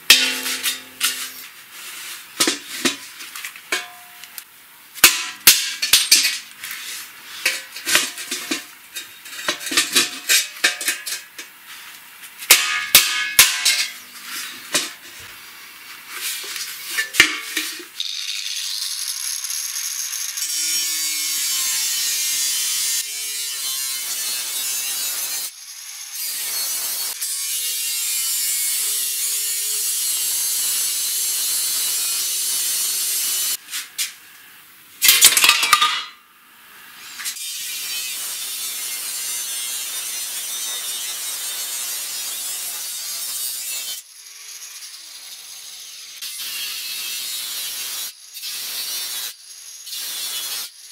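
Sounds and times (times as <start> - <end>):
angle grinder cutting metal: 0.0 - 1.5, 16.7 - 33.6, 37.0 - 50.9
metal knocks on bucket: 0.1 - 1.3, 17.0 - 17.9.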